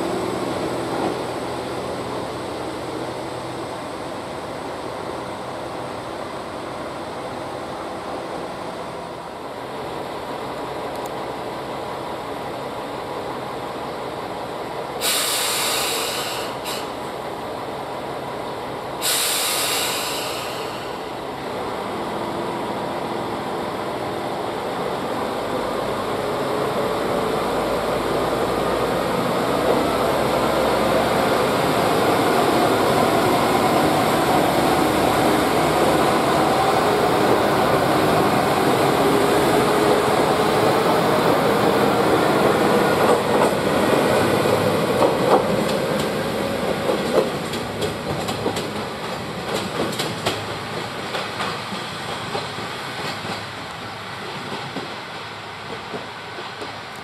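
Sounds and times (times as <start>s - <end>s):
diesel railcar engine: 0.0s - 57.0s
compressed-air hiss: 15.0s - 17.0s, 19.0s - 21.0s.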